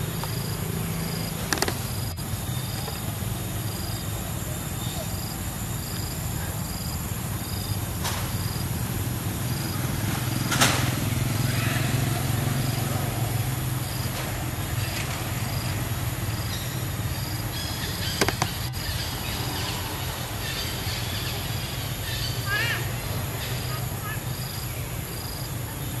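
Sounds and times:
sharp clicks: 0:01.4 - 0:02.0, 0:18.0 - 0:18.7.

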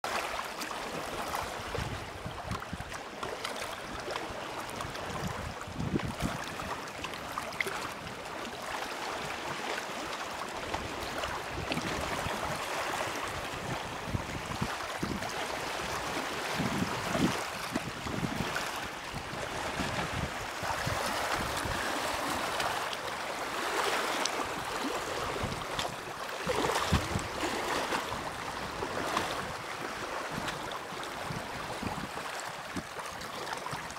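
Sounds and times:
water lapping against rocky shore: 0:00.1 - 0:33.9
wind buffeting microphone: 0:04.7 - 0:06.7, 0:10.7 - 0:22.8, 0:24.4 - 0:32.9.

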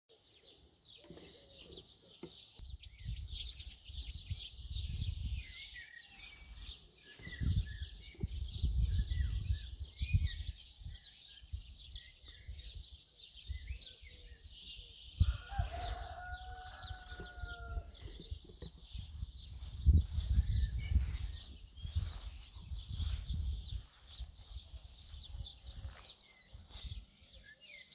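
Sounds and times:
small birds chirping: 0:00.1 - 0:27.9
wind rumbling on microphone: 0:02.6 - 0:27.5
rooster crowing: 0:15.2 - 0:18.0.

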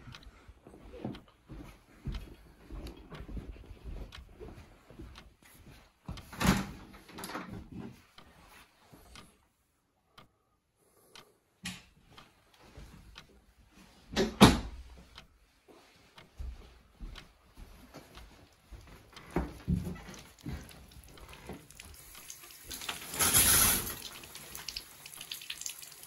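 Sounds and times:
knocks of doors or drawers: 0:14.1 - 0:14.8
rustling of household things: 0:18.4 - 0:24.7.

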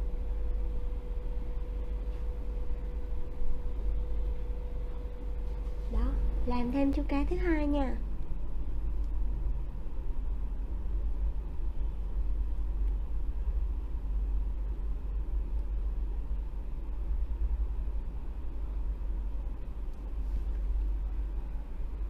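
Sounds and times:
low background rumble: 0:00.0 - 0:22.0.

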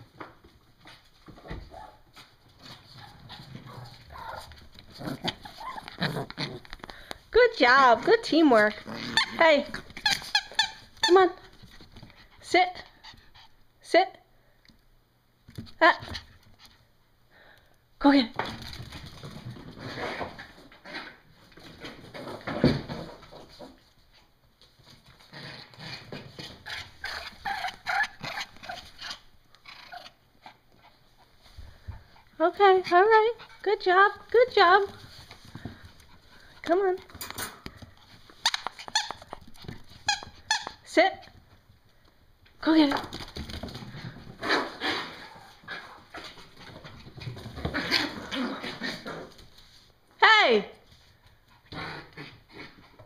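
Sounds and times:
puppies scuffling: 0:00.0 - 0:12.4, 0:30.6 - 0:50.0
puppy whimpering: 0:05.3 - 0:06.0.

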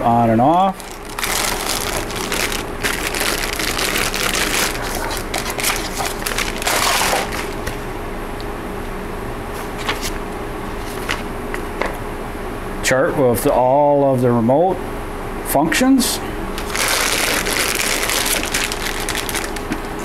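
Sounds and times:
plastic bags crinkling: 0:00.6 - 0:07.8, 0:16.6 - 0:20.0.

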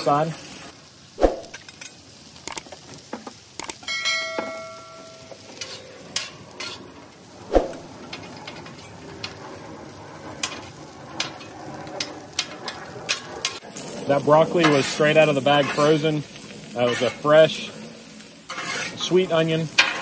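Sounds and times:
vegetables sizzling: 0:00.0 - 0:20.0
ringing metallic clang: 0:03.8 - 0:06.3
metal spatulas scraping griddle: 0:05.4 - 0:09.6, 0:10.2 - 0:20.0.

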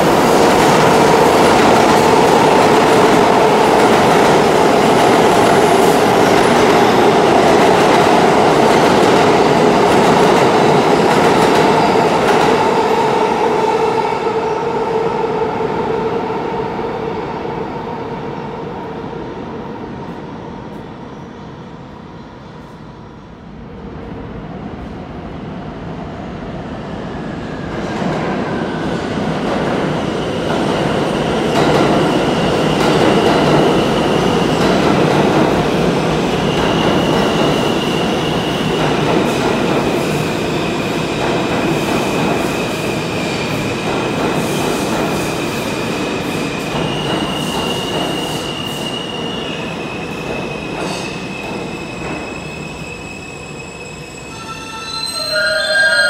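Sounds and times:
subway train rumble: 0:00.0 - 0:56.0
high-pitched wheel squeal: 0:52.1 - 0:56.0.

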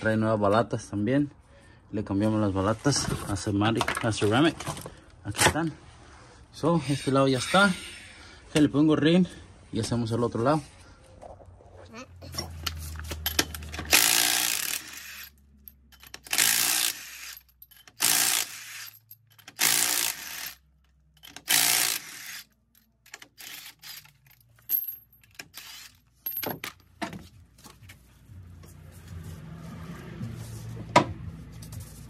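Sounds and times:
metallic clinks of lug nuts: 0:12.3 - 0:20.5
impact wrench bursts: 0:13.3 - 0:15.4, 0:16.0 - 0:20.6, 0:21.2 - 0:22.5, 0:23.1 - 0:24.2, 0:25.3 - 0:26.0.

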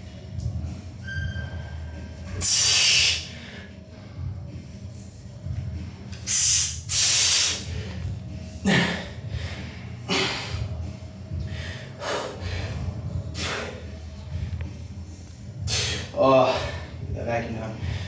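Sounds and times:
man breathing hard: 0:06.3 - 0:14.4.

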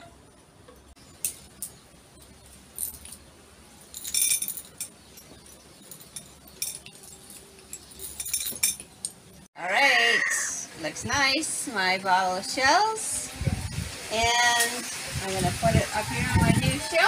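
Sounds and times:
seashells clinking against glass: 0:02.6 - 0:09.2.

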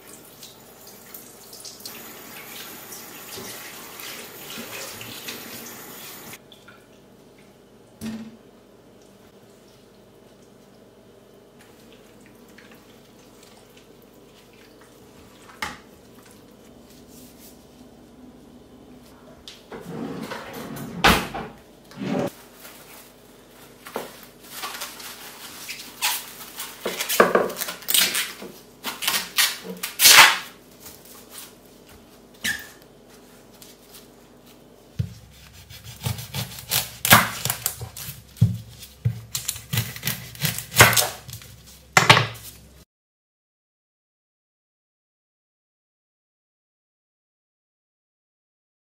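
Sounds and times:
cling film crinkling: 0:22.5 - 0:28.3
onion skin crackling: 0:35.3 - 0:41.8.

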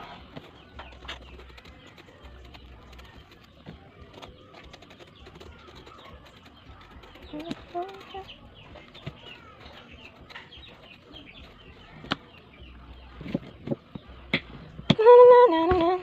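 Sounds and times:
faint bird chirps: 0:00.0 - 0:14.9
knife clicks and scrapes: 0:00.4 - 0:12.2.

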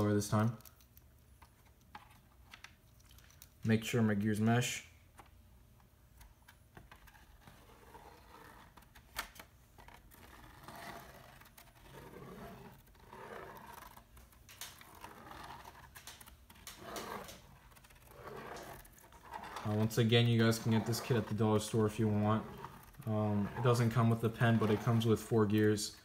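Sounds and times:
plastic gear rasping: 0:06.2 - 0:26.0
pen scratching paper: 0:06.9 - 0:08.9, 0:09.8 - 0:25.5.

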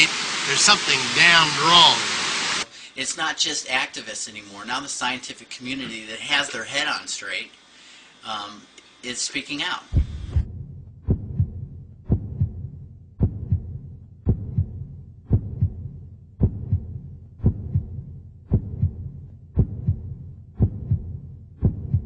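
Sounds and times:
steady low hum: 0:07.7 - 0:22.0
heartbeat-like low thumps: 0:09.9 - 0:22.0.

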